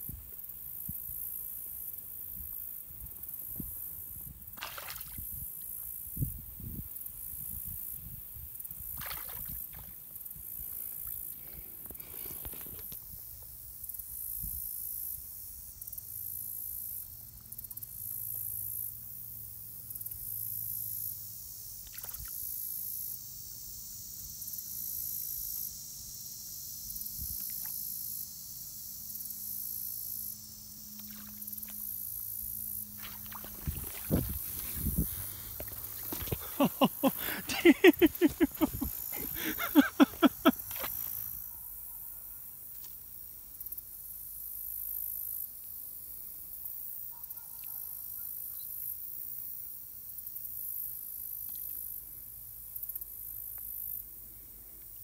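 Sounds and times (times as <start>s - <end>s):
high insect buzz: 0.0s - 47.1s
wind rumble on microphone: 5.1s - 9.9s, 33.3s - 35.6s.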